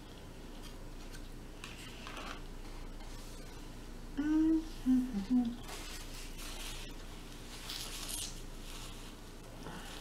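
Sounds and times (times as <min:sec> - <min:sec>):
woman humming while eating: 0:04.2 - 0:05.8
soft rustling: 0:05.5 - 0:10.0.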